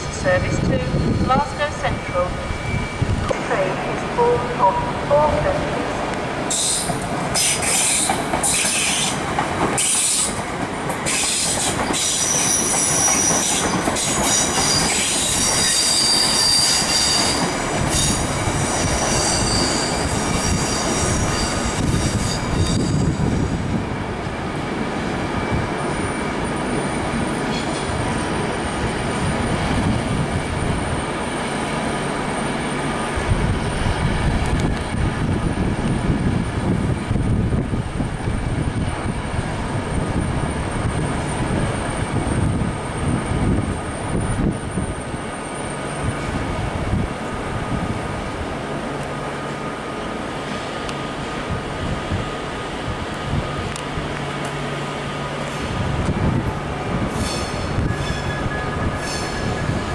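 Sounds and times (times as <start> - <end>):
rumble of wheels on rail: 0.0 - 59.9
train wheels squealing: 0.6 - 3.3, 6.5 - 9.2, 9.8 - 10.4, 11.0 - 23.7, 25.2 - 29.4, 57.1 - 59.9.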